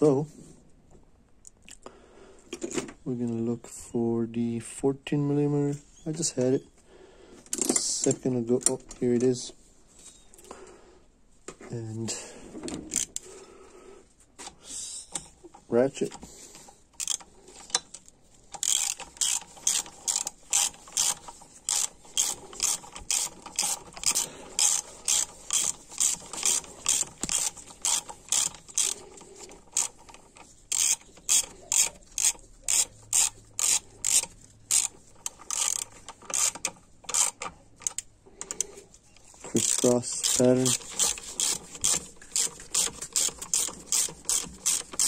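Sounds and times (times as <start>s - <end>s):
hand ratchet clicking: 12.9s - 13.3s, 15.1s - 45.0s.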